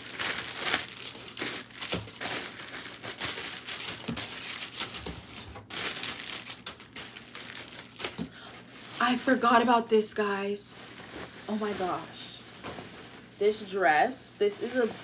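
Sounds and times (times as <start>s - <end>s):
plastic bags crinkling: 0.0s - 15.0s
clothes rustling: 5.2s - 15.0s.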